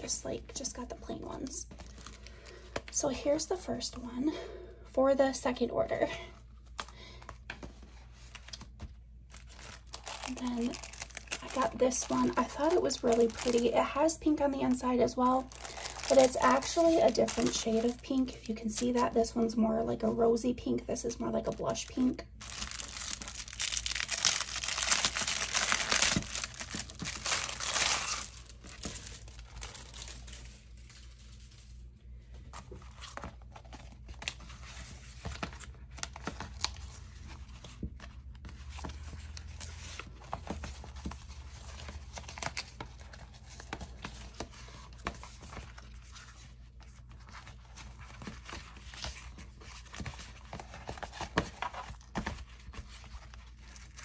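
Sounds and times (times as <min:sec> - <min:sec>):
plastic bag crinkling: 0:09.3 - 0:19.2, 0:21.6 - 0:31.7.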